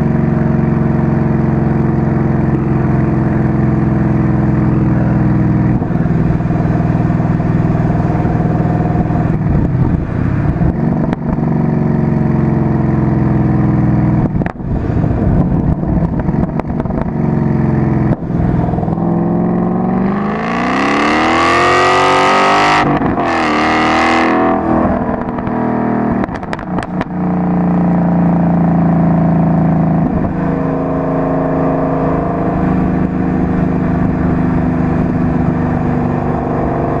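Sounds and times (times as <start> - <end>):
car engine accelerating: 0.0 - 37.0
exhaust crackles: 24.2 - 37.0.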